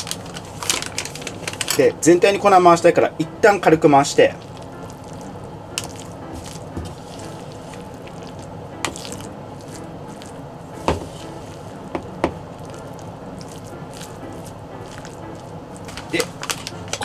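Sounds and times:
spoon stirring food in bowl: 4.4s - 17.0s.

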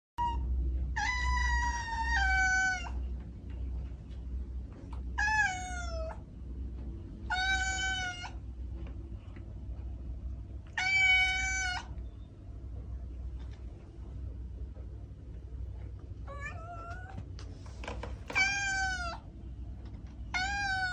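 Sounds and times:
steady low hum: 0.2s - 20.9s
cat meowing: 1.0s - 3.0s, 5.2s - 6.2s, 7.3s - 8.4s, 10.7s - 12.0s, 16.3s - 17.2s, 18.3s - 19.3s, 20.3s - 20.9s.

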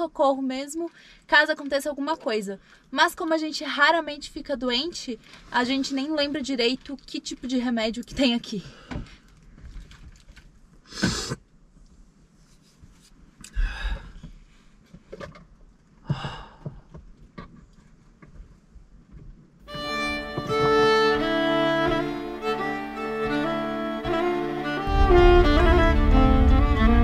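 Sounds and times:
man sighing heavily: 13.5s - 14.2s, 16.1s - 16.8s
violin-led string music: 19.7s - 27.0s.

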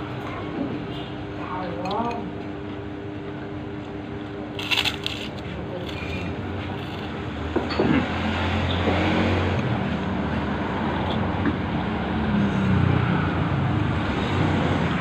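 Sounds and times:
road traffic passing: 6.2s - 15.0s.

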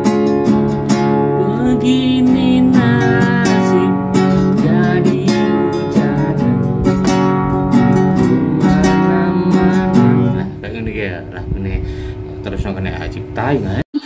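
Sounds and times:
acoustic guitar strummed: 0.0s - 13.8s
man singing: 1.4s - 10.8s.

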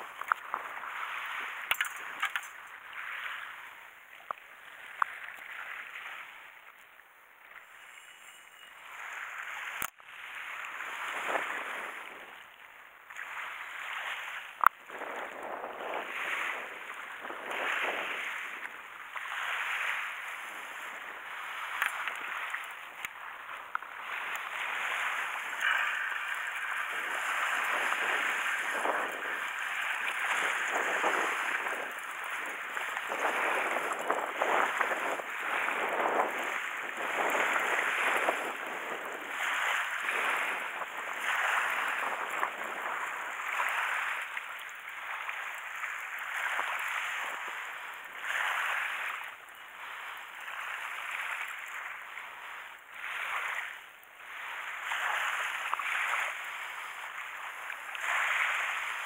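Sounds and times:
sea waves washing ashore: 0.0s - 59.0s.

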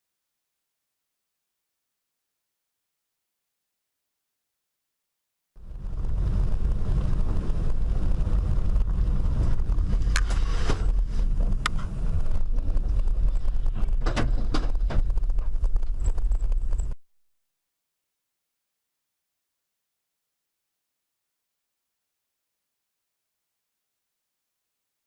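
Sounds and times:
engine and road rumble: 5.6s - 17.0s.

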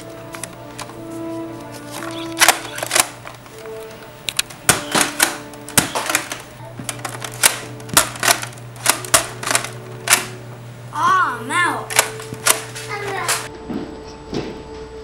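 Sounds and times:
background music: 0.0s - 15.0s
toy blaster clacks and clicks: 2.0s - 3.4s, 4.3s - 10.3s, 11.9s - 13.5s.

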